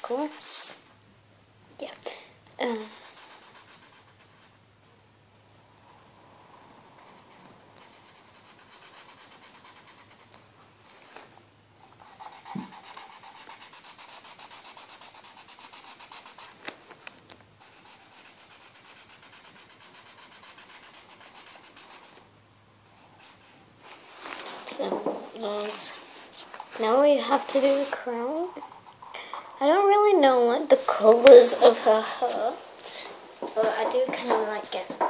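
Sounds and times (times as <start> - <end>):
felt-tip marker scratching paper: 2.6 - 4.5, 7.0 - 10.4, 11.8 - 16.7, 17.6 - 22.2.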